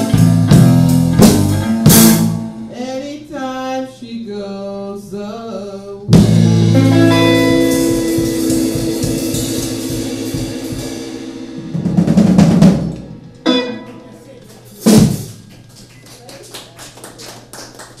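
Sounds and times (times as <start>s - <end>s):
drum roll and hits: 0.0s - 2.5s, 6.2s - 15.7s
electric guitar and bass chord: 6.1s - 14.4s.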